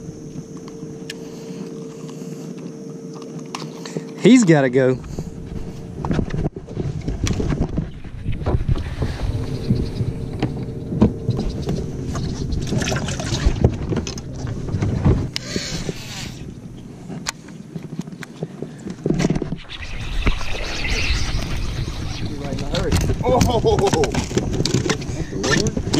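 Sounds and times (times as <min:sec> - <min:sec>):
boat motor humming: 0:00.0 - 0:25.9
wind buffeting microphone: 0:05.0 - 0:25.9
knocks and clicks on boat deck: 0:10.3 - 0:15.4.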